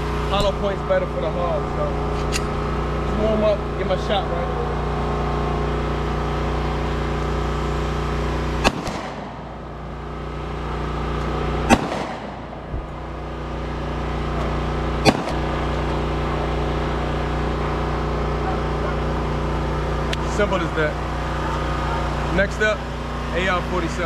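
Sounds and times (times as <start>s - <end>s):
engine hum: 0.0s - 24.0s
pistol shots: 8.6s - 9.4s, 11.6s - 12.6s, 15.0s - 15.8s.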